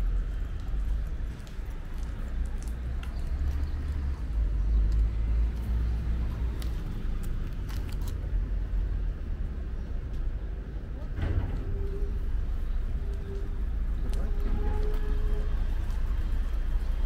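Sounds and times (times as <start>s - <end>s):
faint footsteps: 0.0s - 8.3s
low street rumble: 0.0s - 17.0s.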